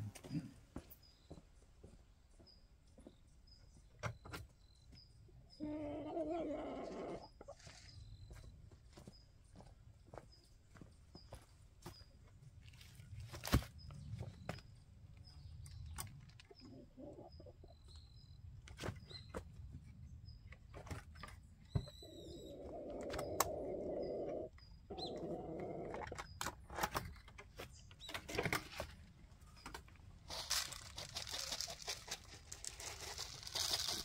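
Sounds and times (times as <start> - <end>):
chickens calling: 5.6 - 7.9, 16.3 - 18.0, 21.8 - 26.3.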